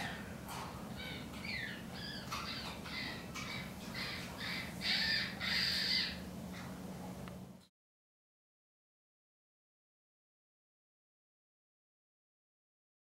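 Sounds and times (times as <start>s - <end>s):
chimpanzee squeaky calls: 1.4s - 6.2s.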